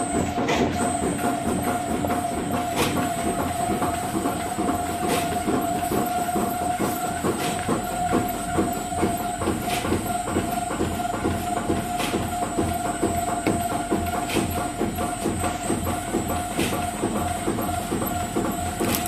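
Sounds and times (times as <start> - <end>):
workshop machinery whining: 0.0 - 19.0
fast mechanical clatter: 0.2 - 19.0.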